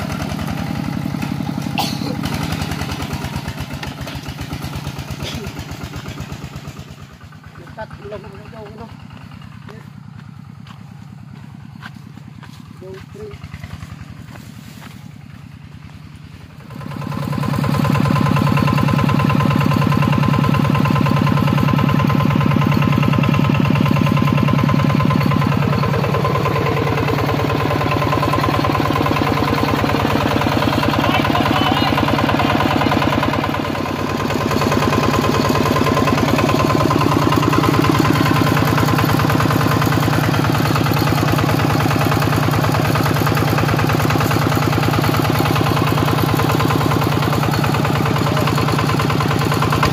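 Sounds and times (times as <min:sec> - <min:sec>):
diesel engine running: 0:00.0 - 0:49.9.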